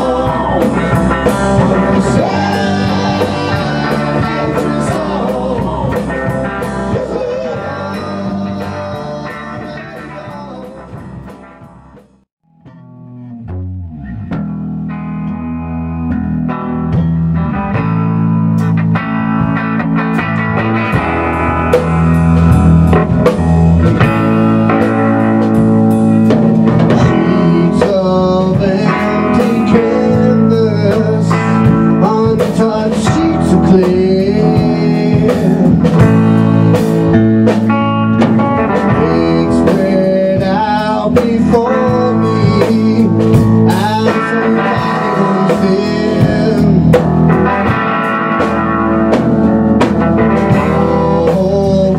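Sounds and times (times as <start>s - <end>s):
person singing: 0.0s - 11.1s, 26.8s - 36.4s, 38.6s - 47.8s, 50.4s - 51.9s
live rock band playing: 0.0s - 51.9s
guitar notes gliding in pitch: 12.4s - 17.6s.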